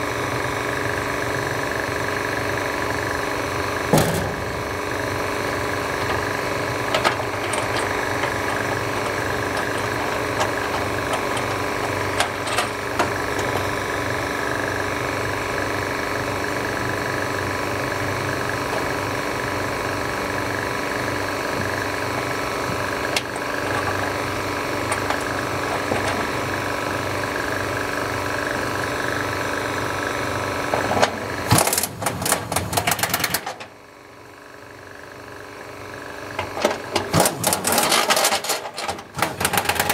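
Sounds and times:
air ratchet rattling clatter: 0:05.9 - 0:13.9, 0:36.4 - 0:39.9.

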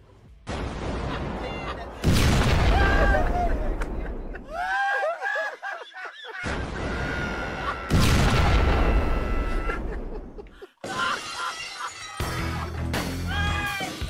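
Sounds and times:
explosion boom: 0:00.5 - 0:04.6, 0:06.4 - 0:10.4.

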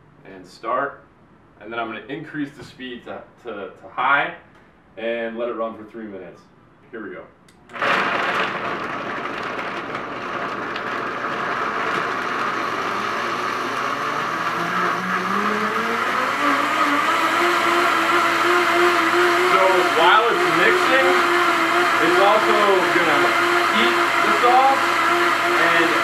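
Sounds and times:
blender motor whining: 0:07.7 - 0:26.0.

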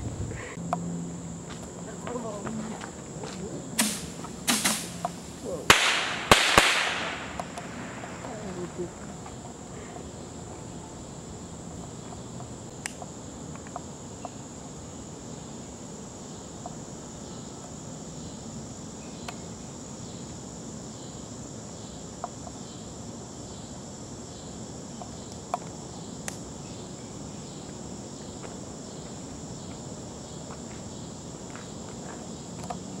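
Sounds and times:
insects chirring: 0:00.0 - 0:33.0
sharp clicks: 0:03.8 - 0:08.4.

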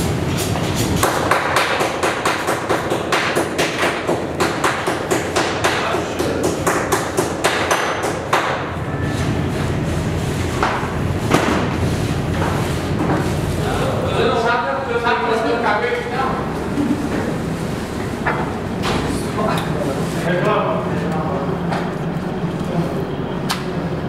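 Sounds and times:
knocks and thuds butchering meat: 0:00.4 - 0:08.8, 0:10.5 - 0:13.4, 0:18.2 - 0:19.2.

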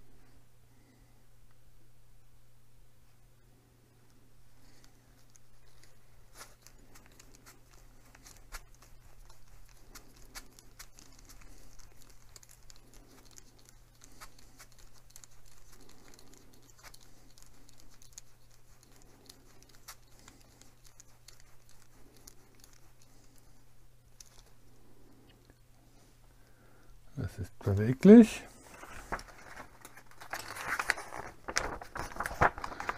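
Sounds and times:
steady low hum: 0:00.0 - 0:32.9
fingers rustling: 0:04.6 - 0:26.0.

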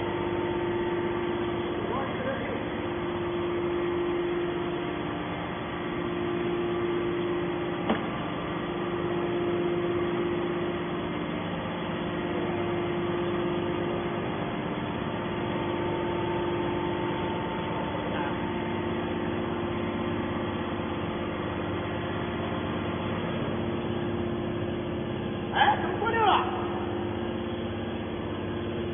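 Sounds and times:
baler machine humming: 0:00.0 - 0:28.9.

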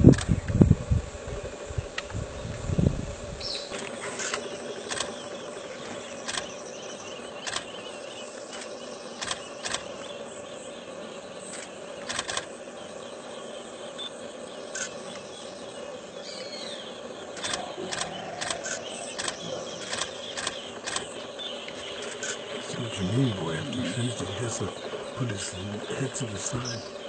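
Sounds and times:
outdoor background hum: 0:00.0 - 0:27.0
short sharp clicks: 0:17.4 - 0:21.1.

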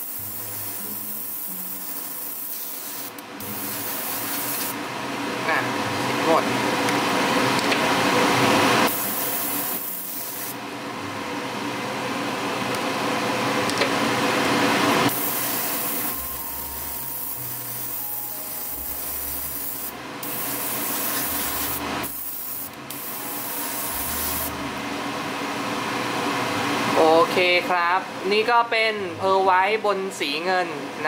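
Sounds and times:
airbrush hissing: 0:00.0 - 0:04.8, 0:08.9 - 0:10.6, 0:15.1 - 0:24.6.

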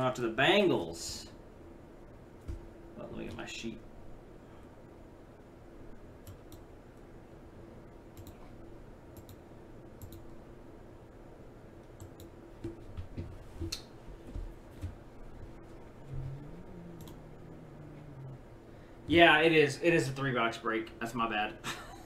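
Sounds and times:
faint low hum: 0:00.0 - 0:22.0
computer mouse clicking: 0:06.2 - 0:06.7, 0:08.2 - 0:08.4, 0:09.1 - 0:09.4, 0:10.0 - 0:10.3, 0:11.8 - 0:12.8, 0:17.0 - 0:17.2.

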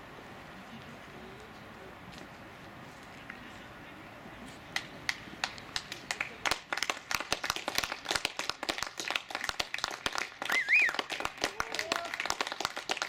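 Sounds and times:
people clapping: 0:04.7 - 0:13.0.

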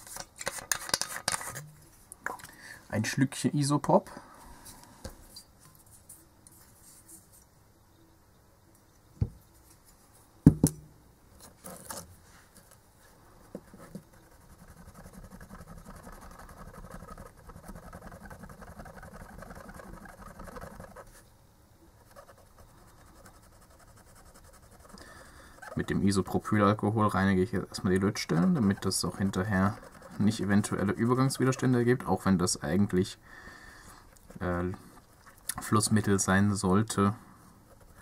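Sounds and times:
cotton swab scrubbing circuit board: 0:13.6 - 0:21.2, 0:22.0 - 0:33.0, 0:34.1 - 0:37.0, 0:37.6 - 0:38.0.

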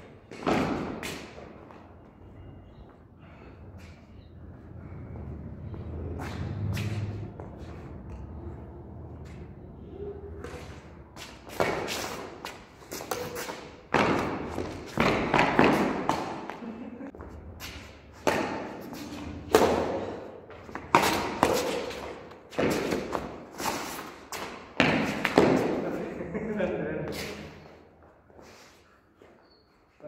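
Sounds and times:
badminton racket hitting shuttlecock: 0:11.2 - 0:16.4, 0:17.7 - 0:20.2, 0:20.8 - 0:25.8.

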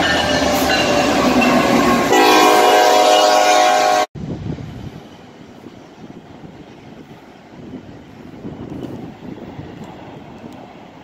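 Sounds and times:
wind buffeting microphone: 0:04.2 - 0:11.0.

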